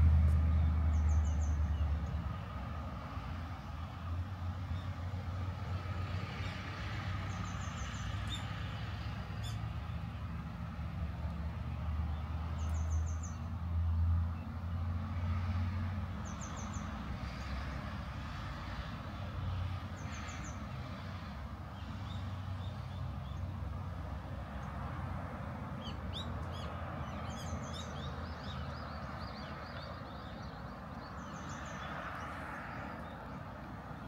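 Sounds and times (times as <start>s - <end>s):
road traffic rumble: 0.0s - 34.0s
small birds chirping: 12.1s - 13.6s, 25.8s - 34.0s.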